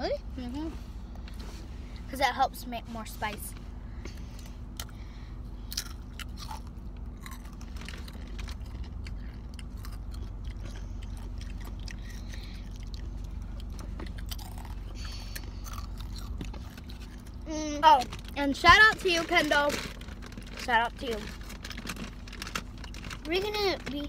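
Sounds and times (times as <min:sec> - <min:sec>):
low hum: 0:00.0 - 0:24.0
chips crunching while chewed: 0:05.7 - 0:17.4, 0:19.0 - 0:23.5.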